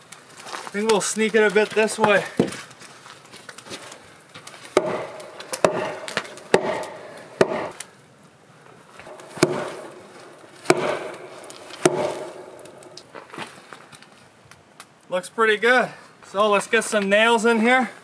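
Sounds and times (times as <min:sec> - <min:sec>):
sledgehammer striking wood: 0:04.8 - 0:07.8, 0:09.0 - 0:13.5.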